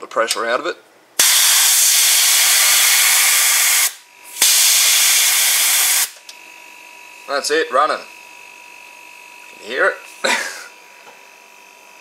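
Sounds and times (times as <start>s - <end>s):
compressed air hissing from tank: 1.2s - 6.2s
compressor motor humming: 1.2s - 12.0s.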